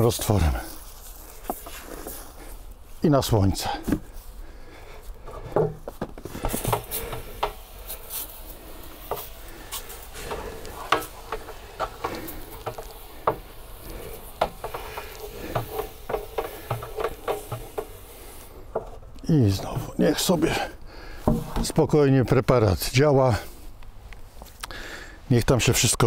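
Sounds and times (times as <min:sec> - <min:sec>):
clicks and knocks on water tank: 0:21.2 - 0:21.7.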